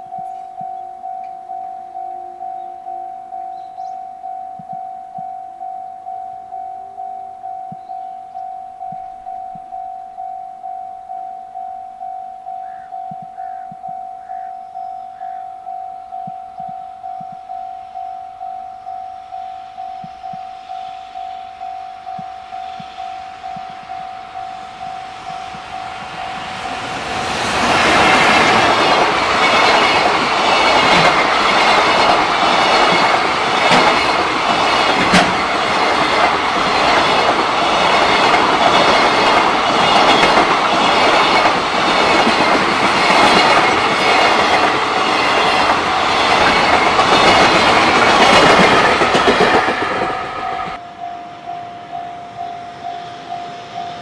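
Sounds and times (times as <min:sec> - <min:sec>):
level crossing bell ringing: 0:00.0 - 0:26.8
train wheels clattering: 0:22.1 - 0:50.8.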